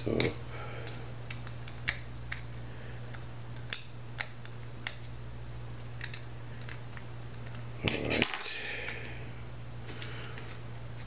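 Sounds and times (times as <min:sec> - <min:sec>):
small sharp clicks and taps: 0:03.1 - 0:05.2.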